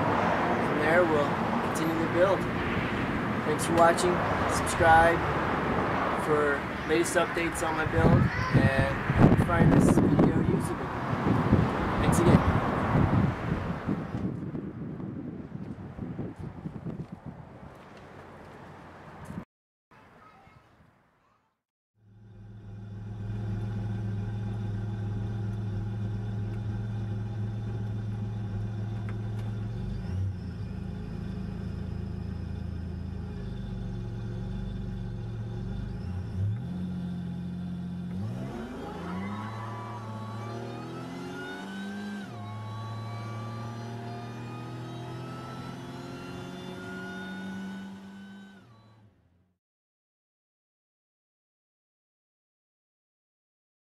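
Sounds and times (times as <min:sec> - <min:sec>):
car engine accelerating: 0:22.0 - 0:49.2.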